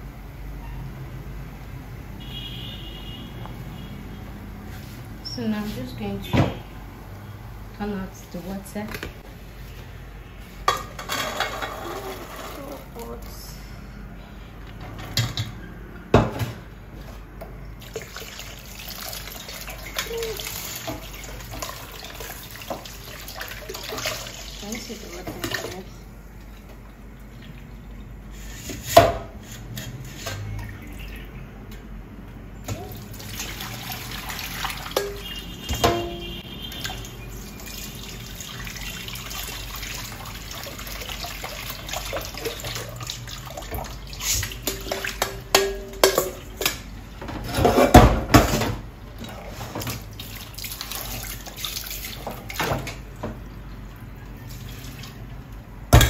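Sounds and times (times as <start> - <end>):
water splashing in a sink: 17.8 - 29.2, 32.7 - 46.8, 48.0 - 56.0.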